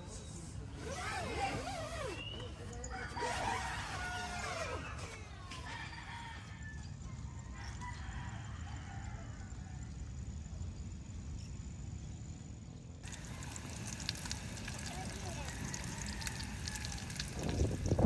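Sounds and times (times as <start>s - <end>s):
rooster crowing: 2.9s - 9.9s, 15.1s - 17.8s
bacon sizzling in a frying pan: 13.1s - 18.0s.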